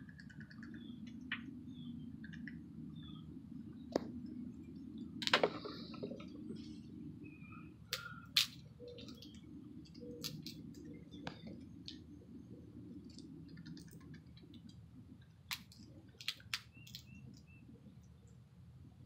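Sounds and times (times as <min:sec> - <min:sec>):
sharp clicks and ticks: 0:00.0 - 0:01.5
low outdoor rumble: 0:00.0 - 0:19.0
chirp-like tones: 0:00.5 - 0:12.8.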